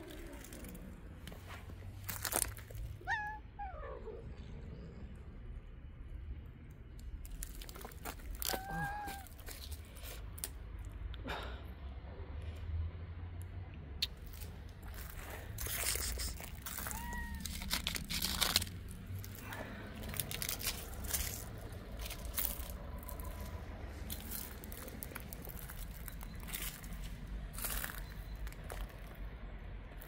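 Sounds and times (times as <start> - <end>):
crinkling and crunching: 0.0 - 3.2, 6.6 - 11.0, 14.0 - 30.0
cat meow: 3.0 - 4.2, 8.4 - 9.5, 16.3 - 18.4.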